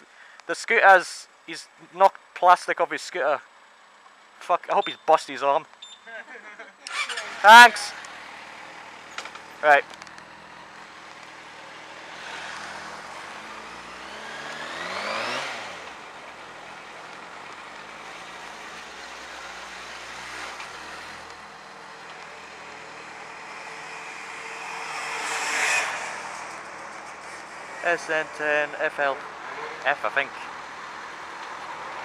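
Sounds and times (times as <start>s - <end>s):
wind and road noise: 6.8s - 32.0s
motorcycle engine accelerating: 6.9s - 28.5s.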